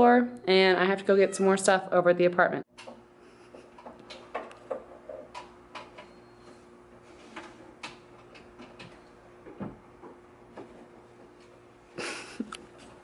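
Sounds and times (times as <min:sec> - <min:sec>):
cables and plugs clicking: 0:03.7 - 0:06.1.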